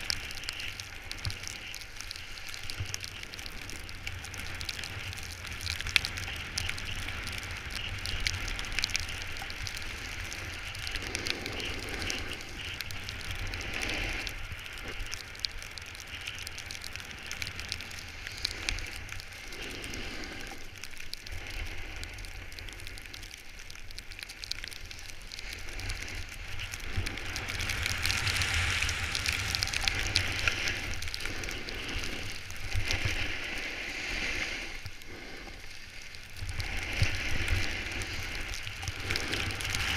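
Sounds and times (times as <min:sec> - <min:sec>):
skis scraping on snow: 0:00.0 - 0:15.4, 0:24.8 - 0:39.9
wind rumble on microphone: 0:00.0 - 0:39.9.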